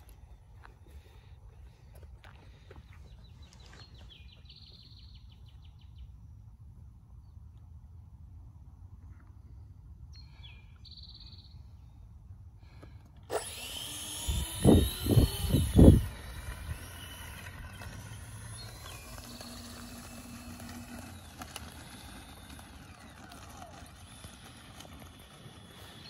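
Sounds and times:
electric ducted fans whining: 0:12.6 - 0:26.0
wind buffeting microphone: 0:13.4 - 0:20.2.

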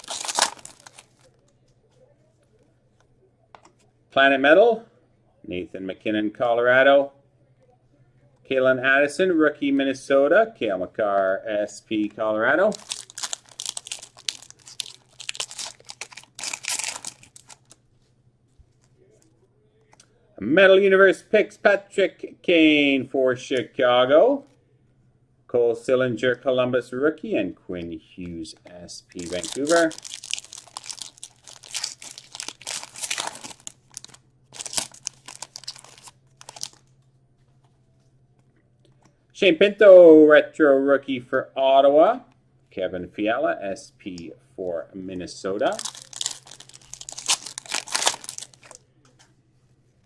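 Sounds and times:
wrapper tearing and crinkling: 0:00.0 - 0:01.3, 0:12.7 - 0:17.8, 0:29.1 - 0:36.8, 0:45.7 - 0:48.8.

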